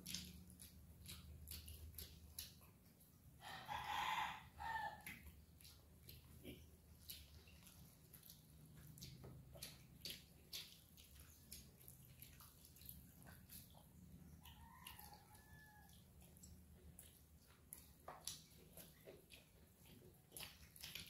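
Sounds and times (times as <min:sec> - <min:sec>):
chewing: 0:00.0 - 0:21.0
fingers working wet rice: 0:00.0 - 0:21.0
faint chicken call: 0:03.4 - 0:05.0.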